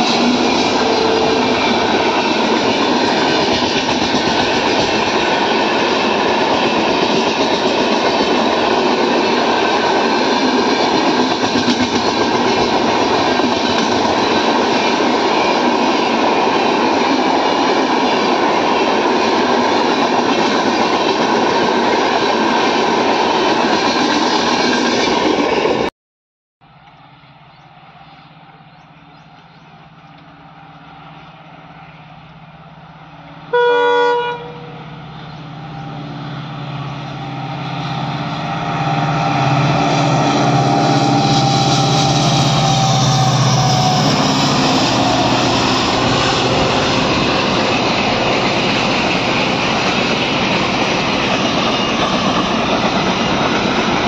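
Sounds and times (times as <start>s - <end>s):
train horn blast: 0.0s - 2.4s, 33.5s - 35.0s, 38.2s - 48.3s
diesel locomotive engine: 0.0s - 25.9s, 26.6s - 54.0s
train wheels rushing on rail: 0.0s - 25.9s, 26.8s - 54.0s.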